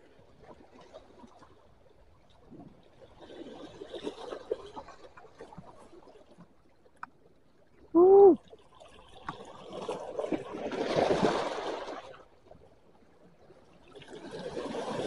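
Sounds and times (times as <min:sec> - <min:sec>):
sea water lapping on rocks: 0:00.1 - 0:06.6, 0:08.6 - 0:12.6, 0:13.4 - 0:15.0.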